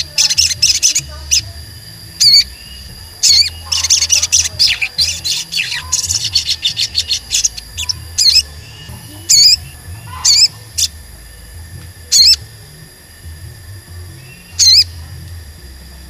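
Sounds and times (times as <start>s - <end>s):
sharp high bird chirps: 0.0s - 1.5s, 2.2s - 11.0s, 12.1s - 12.4s, 14.2s - 15.0s
wavering whistled bird notes: 0.0s - 16.0s.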